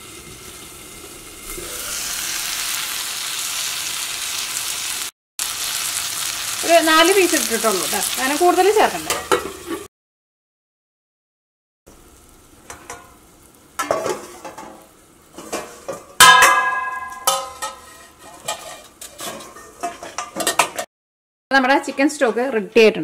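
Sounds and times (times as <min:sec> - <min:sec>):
spoon stirring in pan: 0:13.8 - 0:16.1, 0:17.1 - 0:20.8
metal pot and insert clinking: 0:15.4 - 0:20.9
loud ringing metal clang: 0:16.2 - 0:17.7.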